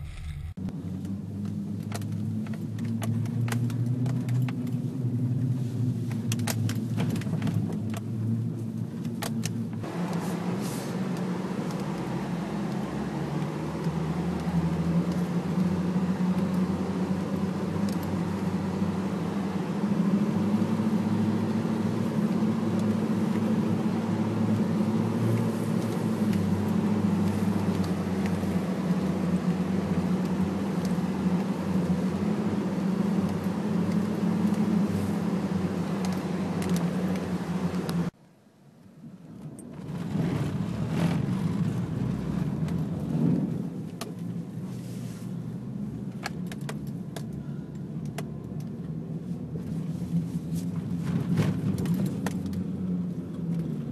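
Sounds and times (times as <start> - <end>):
truck engine drone: 0.0 - 1.4, 9.8 - 38.2.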